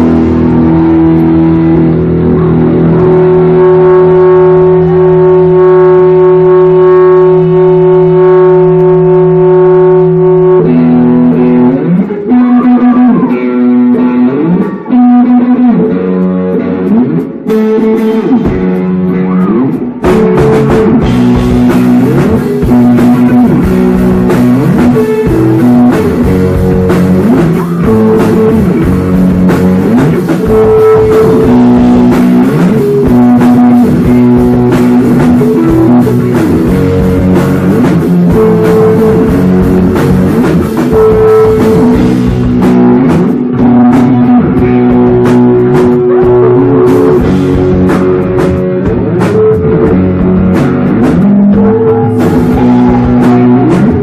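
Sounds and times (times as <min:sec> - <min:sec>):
drums playing hard: 0:00.0 - 0:54.0
electric guitar bending notes: 0:00.0 - 0:54.0
live rock band playing: 0:00.0 - 0:54.0.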